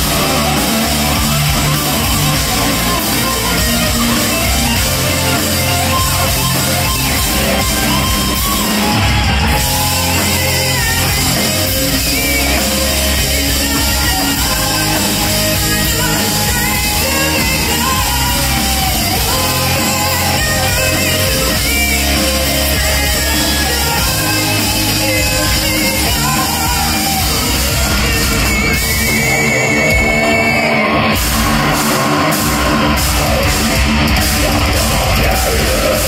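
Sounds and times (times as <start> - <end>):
distorted electric guitar lead: 0.0 - 36.0
drums and bass: 0.0 - 36.0
woman singing: 9.9 - 30.7.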